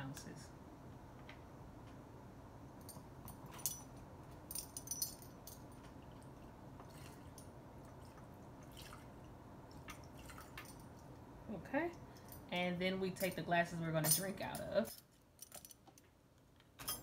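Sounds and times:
light clinks and drips: 4.5s - 9.0s, 9.7s - 11.2s
liquid pouring into cup: 6.0s - 10.7s.

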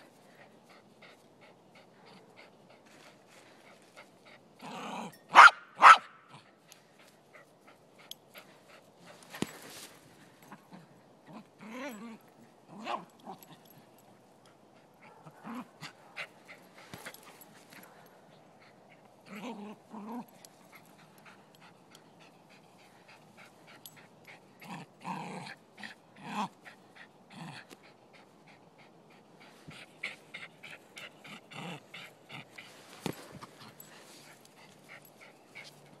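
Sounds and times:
light clicks and scuffs: 6.6s - 10.6s, 16.2s - 18.4s, 32.6s - 36.0s
dog growling and whining: 10.7s - 13.6s, 19.2s - 20.3s.

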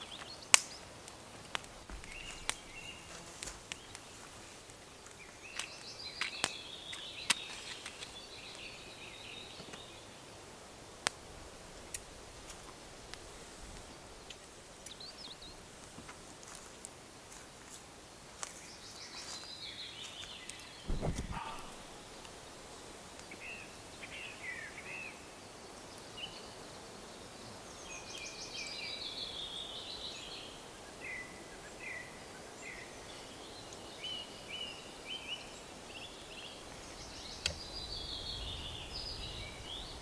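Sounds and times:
birds chirping: 1.8s - 10.2s, 11.8s - 15.8s, 18.5s - 22.6s.

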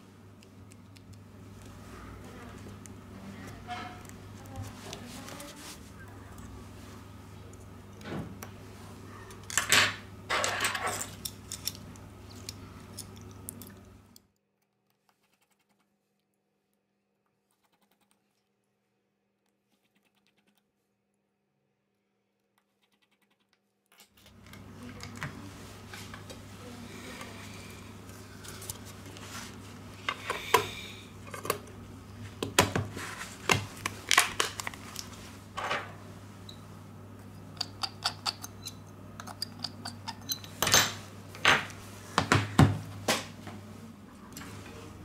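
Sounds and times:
steady low hum: 0.0s - 14.4s, 24.2s - 45.0s.

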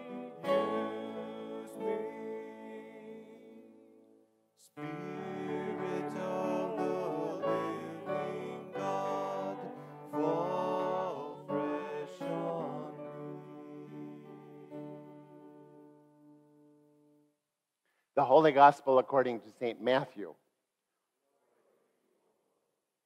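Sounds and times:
slow hymn with instruments: 0.0s - 17.1s.

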